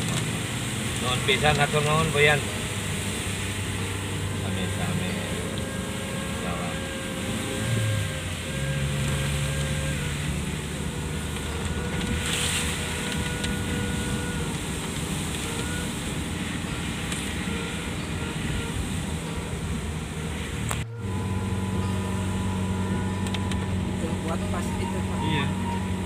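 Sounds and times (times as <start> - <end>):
car engine hum: 0.0 - 26.0
rain on windscreen: 0.0 - 26.0
tyres hissing on wet road: 0.0 - 26.0
windscreen wipers sweeping: 0.0 - 26.0.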